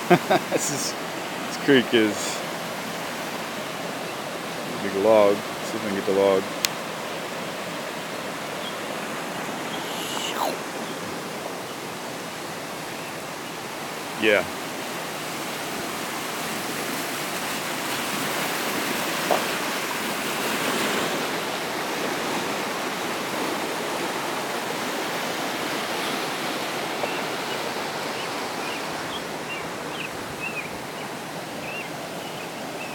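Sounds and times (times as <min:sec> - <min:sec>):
creek water rushing: 0:00.0 - 0:32.9
short high chirps: 0:09.6 - 0:10.7.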